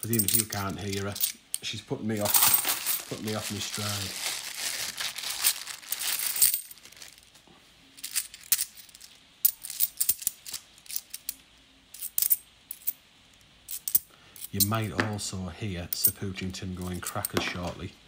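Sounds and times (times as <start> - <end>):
coins clinking together: 0.0 - 1.4, 2.2 - 3.6, 5.4 - 6.8, 8.0 - 13.0, 13.7 - 14.8
plastic bag crinkling: 2.3 - 7.4.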